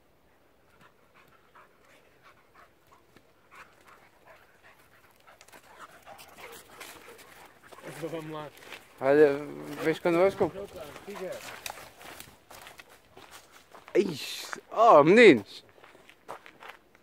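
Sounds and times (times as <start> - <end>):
dog panting: 0.3 - 12.0.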